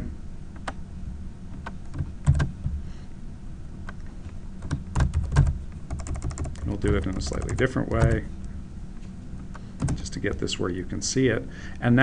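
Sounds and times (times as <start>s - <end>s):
low room hum: 0.0s - 12.0s
keyboard key clicks: 9.8s - 10.4s.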